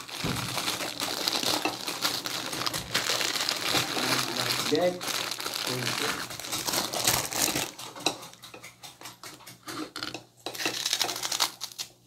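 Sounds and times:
dishes and utensils clinking: 0:06.2 - 0:11.2.

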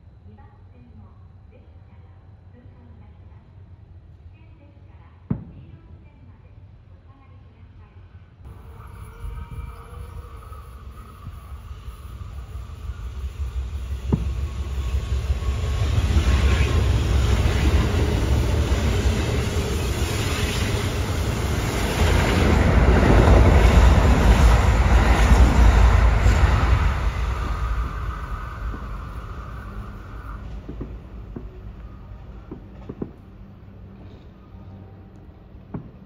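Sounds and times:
train passing: 0:08.1 - 0:36.0.

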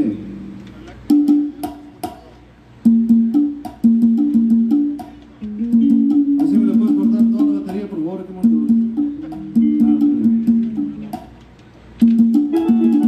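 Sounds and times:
sharp percussion clicks: 0:00.6 - 0:13.0
plucked electric guitar notes: 0:05.4 - 0:07.6, 0:08.5 - 0:11.2, 0:12.1 - 0:13.0.

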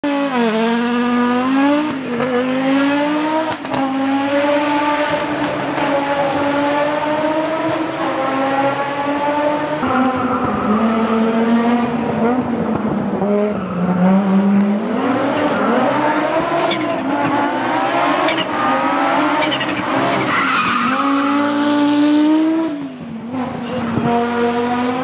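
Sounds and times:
rally car engine accelerating: 0:00.0 - 0:25.0.

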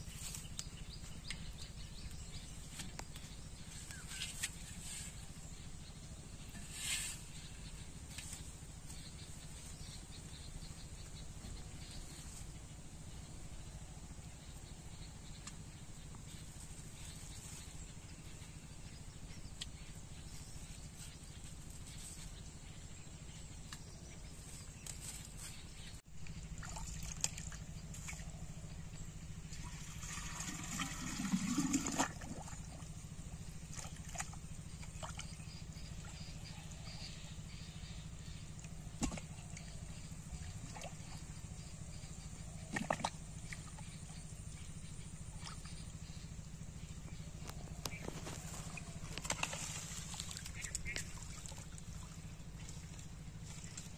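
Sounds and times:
outdoor background noise: 0:00.0 - 0:53.9
small splashes and knocks: 0:26.2 - 0:36.3, 0:38.5 - 0:41.7, 0:42.3 - 0:46.1, 0:47.4 - 0:53.9
water splashing and gurgling: 0:26.2 - 0:37.1, 0:38.2 - 0:53.9.

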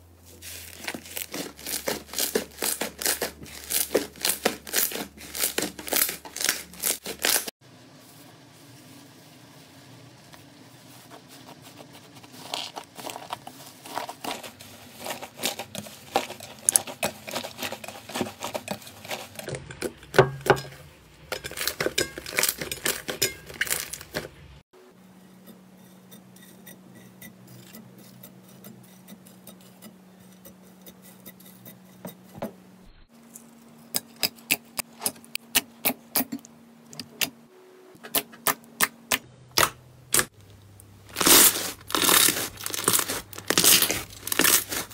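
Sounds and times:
hands squishing slime: 0:41.1 - 0:44.9.

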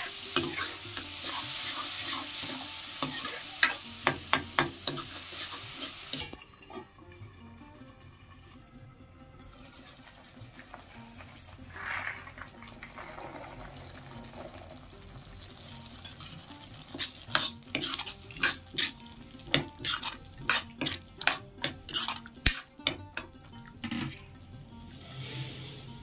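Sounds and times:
metal spatula scraping a pan: 0:00.0 - 0:06.9, 0:10.8 - 0:14.6, 0:16.0 - 0:23.0
masala sizzling in a pan: 0:00.0 - 0:23.6.

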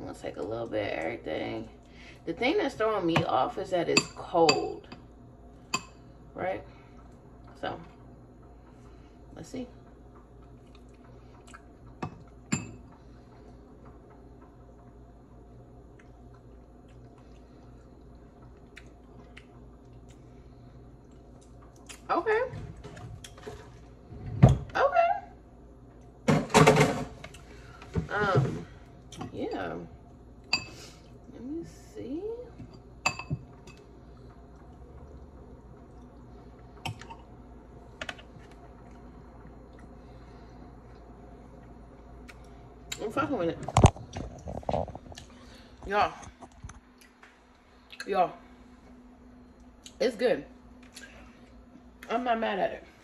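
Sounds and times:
low room hum: 0:00.0 - 0:53.0
wet chewing sounds: 0:10.4 - 0:12.5, 0:15.9 - 0:22.1.

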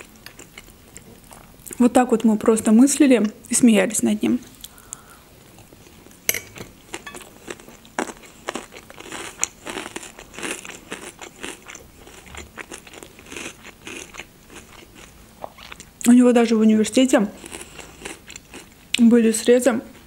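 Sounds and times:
crunchy chewing: 0:06.8 - 0:16.0, 0:17.4 - 0:18.8.

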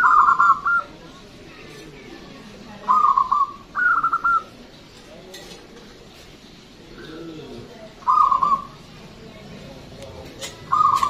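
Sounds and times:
dove cooing: 0:00.0 - 0:01.0, 0:02.8 - 0:04.6, 0:06.8 - 0:08.9, 0:10.4 - 0:11.0.

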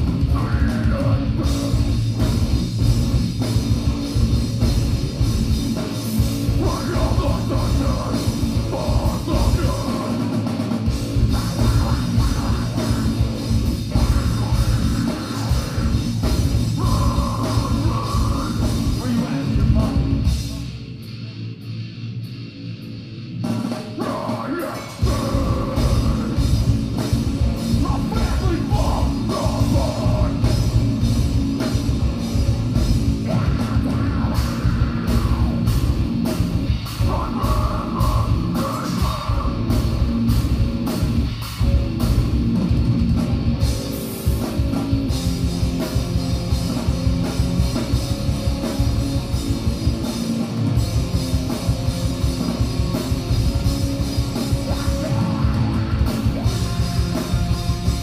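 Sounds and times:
heavy rock band playing: 0:00.0 - 0:58.0
person singing: 0:06.5 - 0:10.3, 0:16.8 - 0:20.1, 0:24.0 - 0:26.5, 0:27.7 - 0:30.6, 0:37.0 - 0:39.8, 0:54.7 - 0:57.6.

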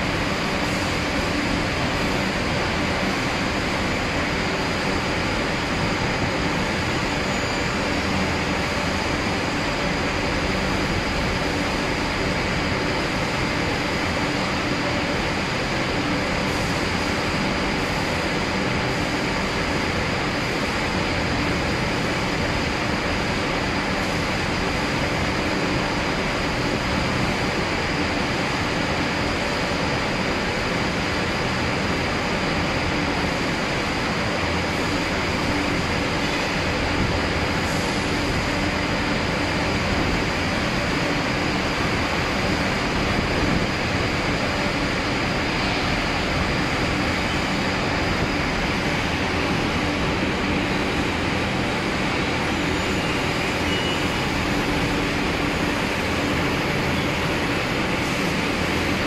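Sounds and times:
production line machinery noise: 0:00.0 - 0:59.0.

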